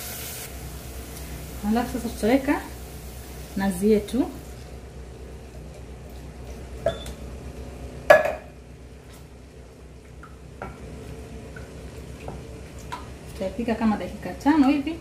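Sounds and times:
knock on metal pot: 8.1s - 8.5s
wooden spoon stirring sauce: 10.0s - 13.5s.

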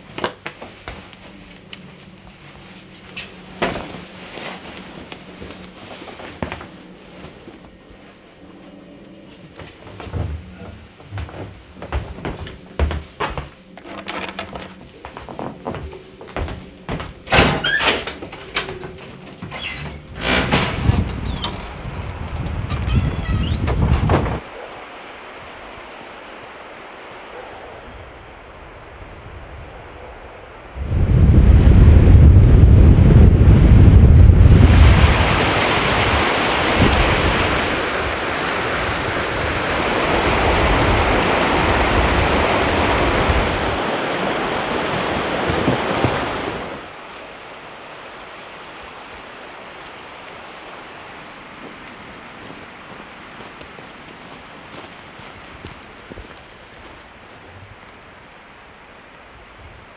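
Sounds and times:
heavy garment rustling: 0.1s - 8.3s
wind rumble on microphone: 19.2s - 24.6s, 25.2s - 47.0s.

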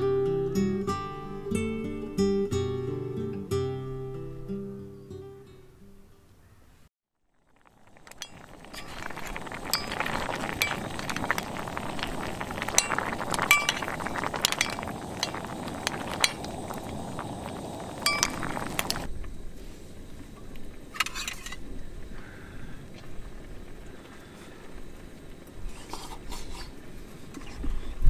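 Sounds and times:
broth simmering with bubbling hiss: 7.2s - 28.0s
spoon clinking on shells and pan: 8.1s - 11.6s, 12.6s - 16.5s, 18.0s - 19.0s.

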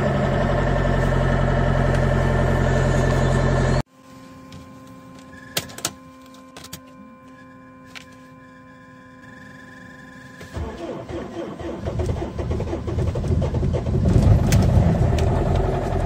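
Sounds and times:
diesel car engine running: 0.0s - 3.9s, 10.4s - 16.0s
faint steady hum and whir: 3.8s - 10.8s
engine cranking: 10.5s - 16.0s.

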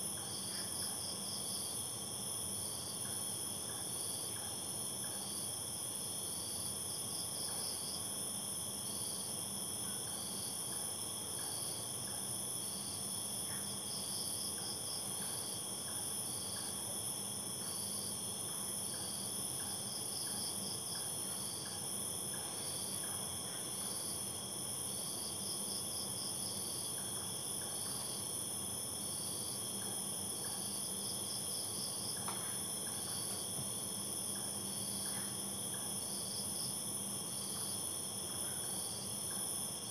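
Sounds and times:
cricket chirps and trills: 0.0s - 39.9s
crickets droning: 0.0s - 39.9s.

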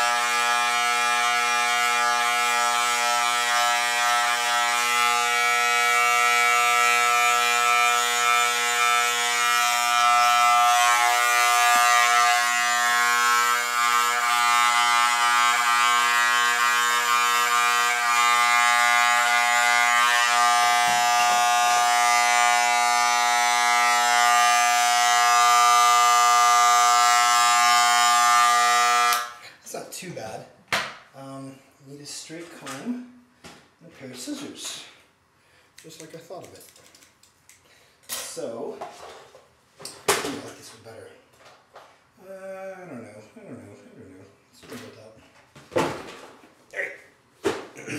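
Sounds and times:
electric hair clippers buzzing: 0.0s - 29.4s.

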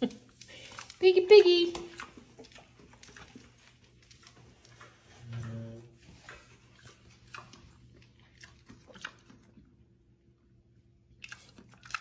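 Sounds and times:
pig hooves clicking on tile: 0.0s - 9.7s
pig grunting: 5.1s - 6.0s.

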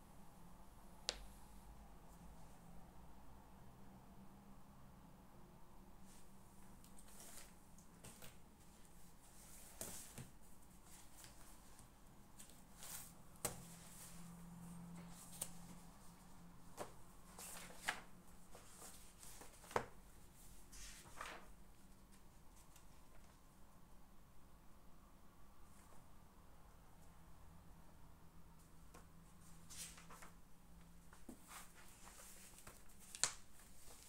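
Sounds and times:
paper rustling: 6.9s - 14.3s, 16.7s - 20.0s, 20.7s - 21.5s, 29.4s - 30.4s, 31.1s - 34.0s.

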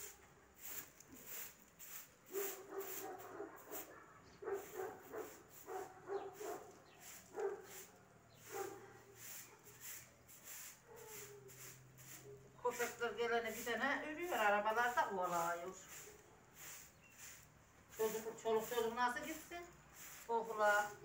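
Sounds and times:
broom swishing on concrete: 0.0s - 21.0s
dog barking and whimpering: 2.4s - 6.7s, 8.4s - 9.0s, 10.9s - 11.5s.

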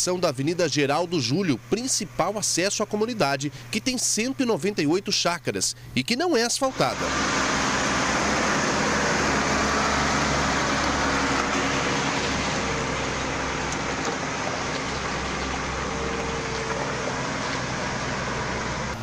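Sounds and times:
heavy diesel engines under load: 6.7s - 19.0s.

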